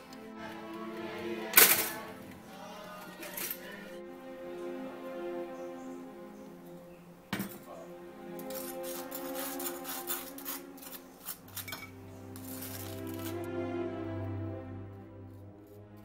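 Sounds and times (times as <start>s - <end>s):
soft background music: 0.0s - 16.0s
knife scraping on toast and plate: 8.4s - 13.4s.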